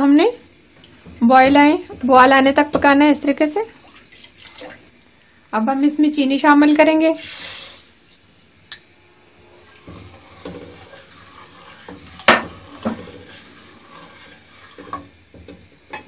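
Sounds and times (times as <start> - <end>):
ladle stirring in pot: 0.5 - 5.0, 9.4 - 15.8
ladle knocking against pot: 11.9 - 13.2.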